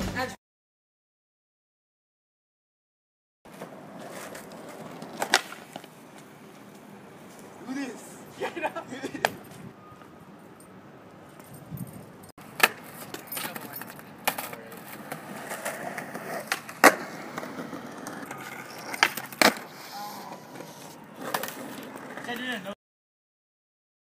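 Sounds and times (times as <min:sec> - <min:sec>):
skateboard clacking on ground: 0:03.5 - 0:06.9, 0:12.4 - 0:22.7
skateboard rolling on asphalt: 0:03.5 - 0:08.3, 0:12.4 - 0:22.8.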